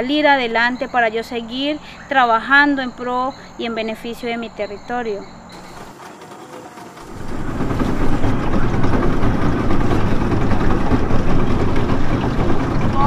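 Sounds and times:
motorboat engine running: 0:04.2 - 0:13.0.

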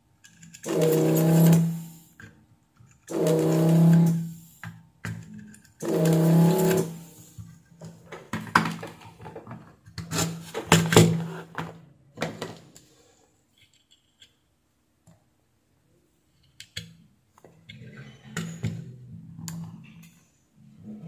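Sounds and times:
desoldering pump buzzing: 0:00.6 - 0:01.8, 0:03.1 - 0:04.4, 0:05.8 - 0:07.2.

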